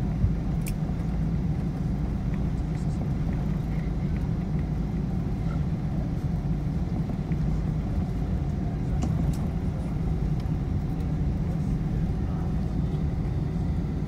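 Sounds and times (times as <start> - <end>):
airplane cabin rumble: 0.0 - 14.0.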